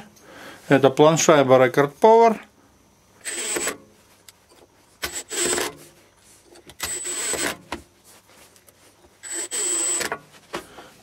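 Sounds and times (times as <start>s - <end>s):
cordless screwdriver whining: 3.2s - 3.8s, 5.0s - 5.7s, 6.8s - 7.6s, 9.2s - 10.1s.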